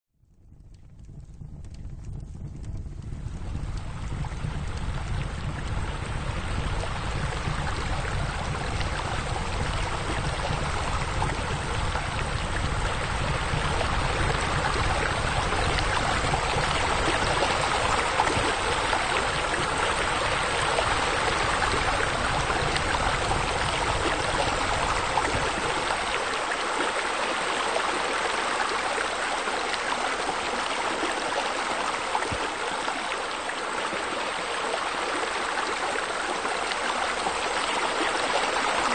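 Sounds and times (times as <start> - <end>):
low rumble: 0.2 - 26.6
running water trickling: 2.7 - 38.9.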